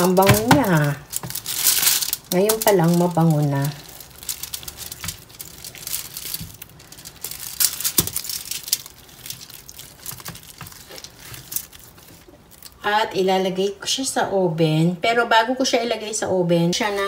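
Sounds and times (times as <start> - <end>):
aluminium foil crinkling: 0.0 - 12.9.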